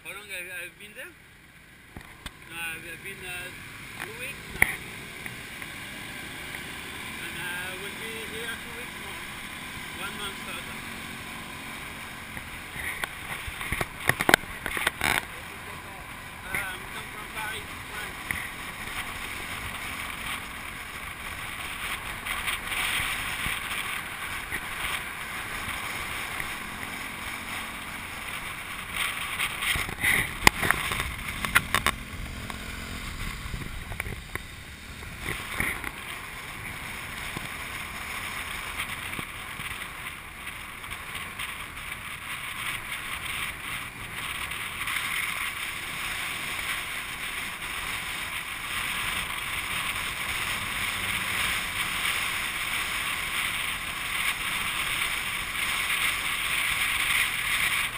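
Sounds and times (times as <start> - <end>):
wind and road noise: 0.0 - 57.9
motorbike engine running: 3.8 - 57.9
wind buffeting microphone: 29.7 - 35.6.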